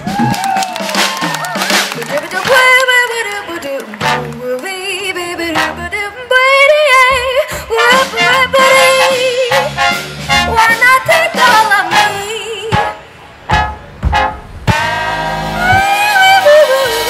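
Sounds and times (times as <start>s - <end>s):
brass band playing swing jazz: 0.9s - 17.0s
woman singing wordless vibrato: 2.0s - 13.1s, 15.6s - 17.0s.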